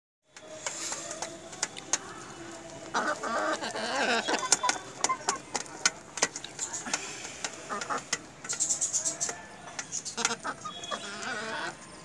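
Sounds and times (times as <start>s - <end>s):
chicken clucking: 0.6s - 11.8s
beaks tapping metal pan: 4.2s - 11.1s.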